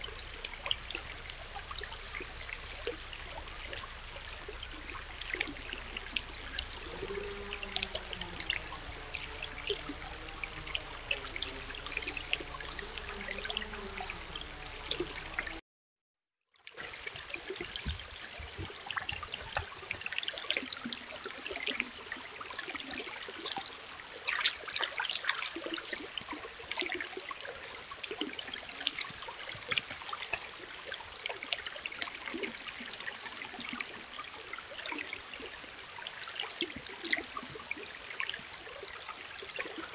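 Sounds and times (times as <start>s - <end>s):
faint low wavering hum: 0.0s - 15.6s
stream trickling over rocks: 0.0s - 15.6s, 16.6s - 39.9s.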